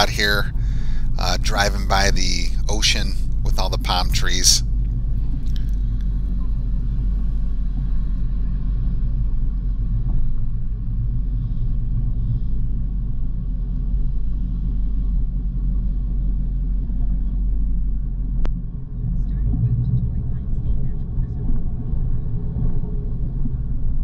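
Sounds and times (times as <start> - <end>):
car engine low rumble: 0.0 - 24.0.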